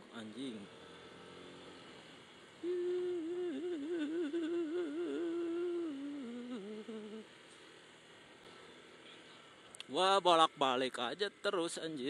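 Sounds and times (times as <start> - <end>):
man humming: 2.6 - 7.3.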